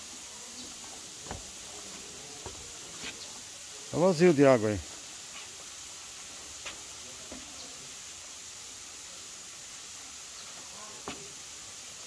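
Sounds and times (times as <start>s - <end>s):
forest ambience hiss: 0.0s - 12.0s.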